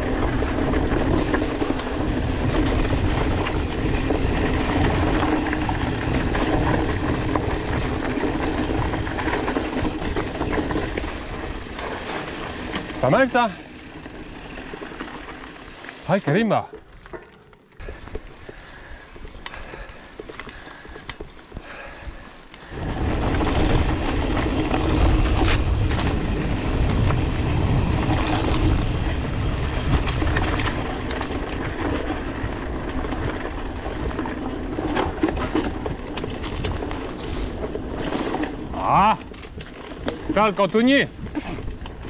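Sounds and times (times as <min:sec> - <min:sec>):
bike rattling with clicks: 0:00.0 - 0:42.0
bike tyres rumbling on dirt: 0:00.0 - 0:42.0.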